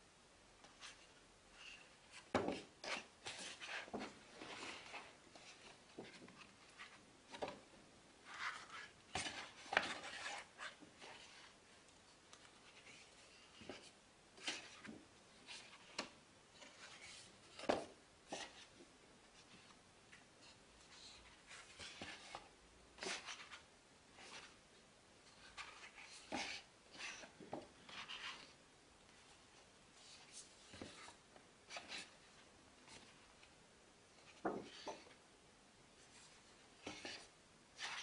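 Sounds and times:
paper rustling: 8.2s - 11.6s.

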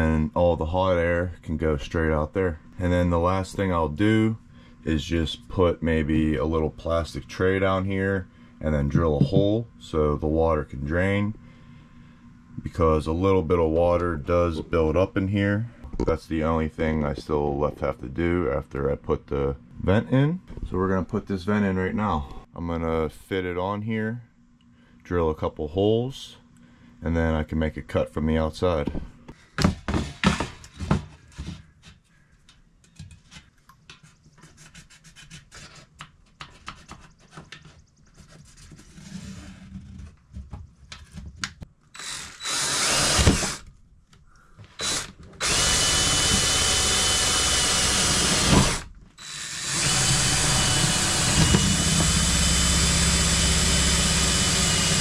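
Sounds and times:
cordless drill drilling: 42.0s - 43.6s, 44.8s - 55.0s.

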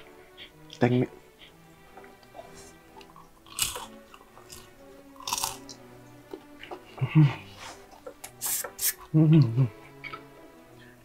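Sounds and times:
crunching bites and chewing: 3.0s - 6.8s.

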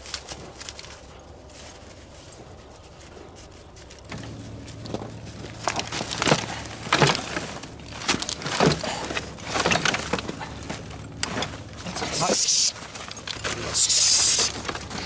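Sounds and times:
scrap metal knocking: 4.1s - 13.8s.

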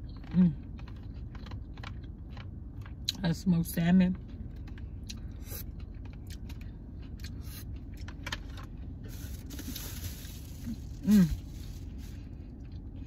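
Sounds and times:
person chewing: 0.0s - 3.2s, 4.2s - 13.0s
low rumble inside car: 0.0s - 13.0s.

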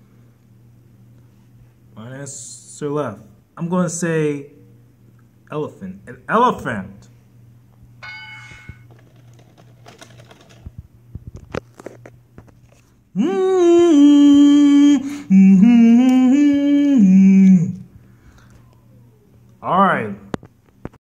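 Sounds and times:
person humming a tune: 13.2s - 17.9s.

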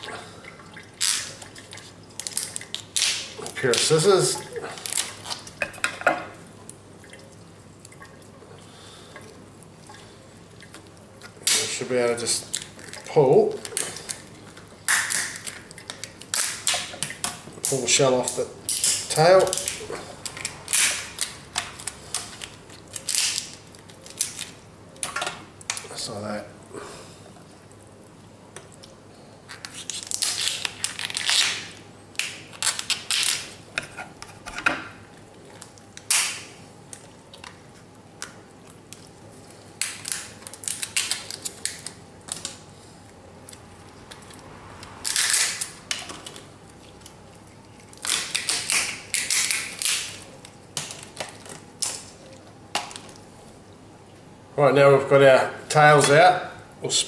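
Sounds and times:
shells cracking and snapping: 2.2s - 4.0s, 12.5s - 25.9s, 28.6s - 33.9s, 35.3s - 42.6s, 45.0s - 53.2s.

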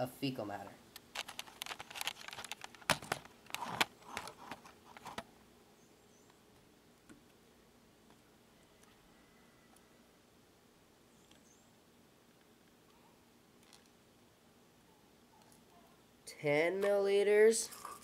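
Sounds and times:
camera handling clicks and knocks: 1.1s - 5.3s.

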